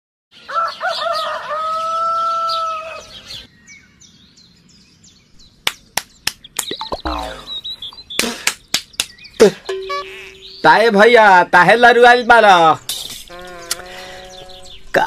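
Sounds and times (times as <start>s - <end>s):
small birds chirping: 0.3s - 15.0s
rooster crowing: 0.5s - 3.2s
hand slaps: 5.6s - 6.8s, 8.2s - 9.2s.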